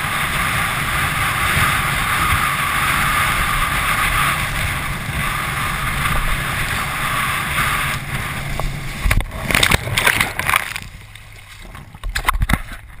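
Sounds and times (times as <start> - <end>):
wind rushing: 0.0 - 11.0
water rushing past wakeboard: 0.0 - 13.0.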